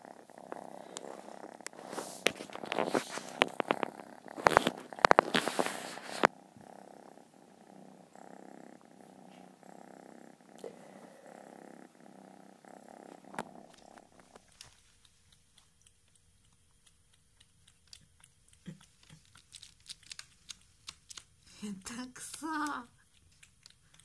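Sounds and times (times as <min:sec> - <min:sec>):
kitten purring: 0:00.0 - 0:24.0
cat lapping milk: 0:14.2 - 0:21.5.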